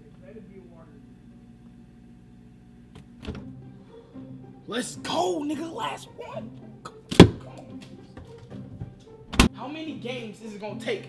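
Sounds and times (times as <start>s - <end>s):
faint low hum: 0.0s - 4.2s.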